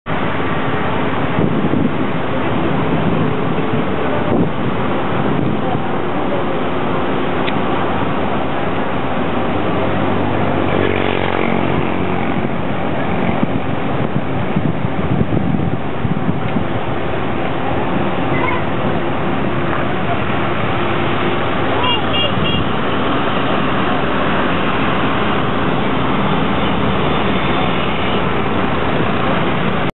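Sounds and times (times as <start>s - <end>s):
engine humming: 0.1s - 29.9s
river water rushing: 0.1s - 29.9s
wind on microphone: 0.1s - 29.9s.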